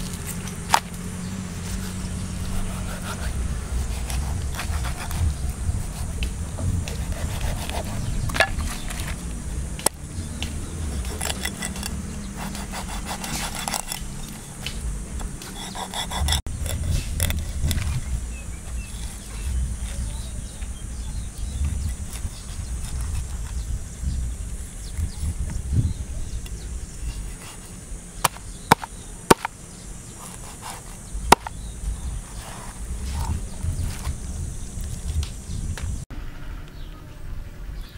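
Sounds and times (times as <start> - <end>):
cleaver cutting through fish: 9.8 - 14.8, 30.2 - 31.6
cleaver chopping on wooden block: 28.2 - 29.6, 30.3 - 31.6.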